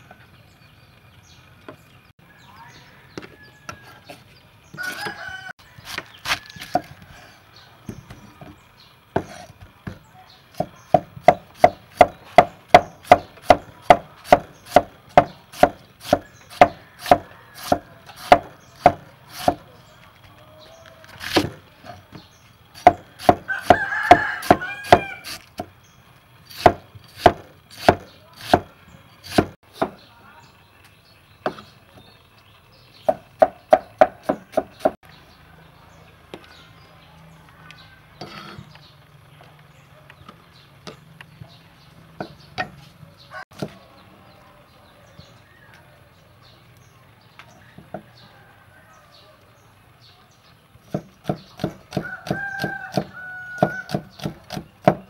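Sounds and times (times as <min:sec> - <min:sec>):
cleaver chopping on wooden block: 0:05.8 - 0:07.0, 0:09.2 - 0:19.7, 0:21.2 - 0:22.2, 0:22.8 - 0:25.7, 0:26.5 - 0:30.0, 0:33.0 - 0:35.0, 0:50.9 - 0:55.0.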